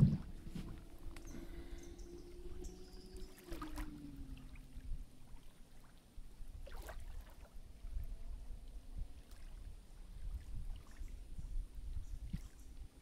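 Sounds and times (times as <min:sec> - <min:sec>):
distant motor hum: 0:00.0 - 0:06.2
small waves lapping at shore: 0:00.0 - 0:13.0
wind rumble on microphone: 0:00.0 - 0:13.0.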